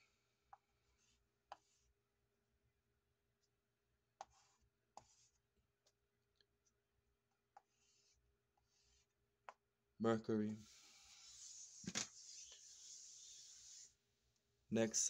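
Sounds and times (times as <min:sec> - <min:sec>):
chalk scraping on floor: 0:10.6 - 0:14.0.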